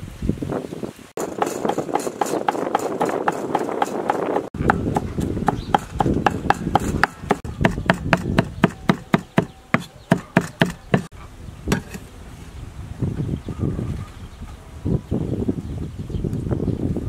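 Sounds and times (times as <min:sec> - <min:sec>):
cleaver chopping on wooden board: 0:01.2 - 0:11.1, 0:11.7 - 0:12.0.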